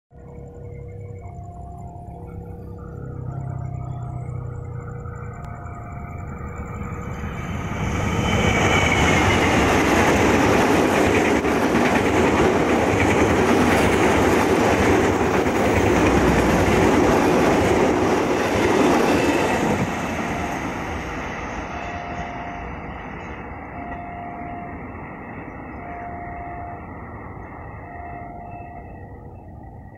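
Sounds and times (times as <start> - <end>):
level crossing warning bell: 0.1 - 29.9
train wheels clattering on rails: 7.5 - 25.7.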